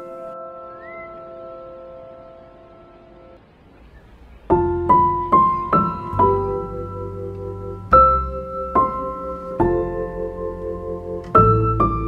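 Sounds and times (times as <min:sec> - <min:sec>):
slow solo piano piece: 0:00.0 - 0:12.0.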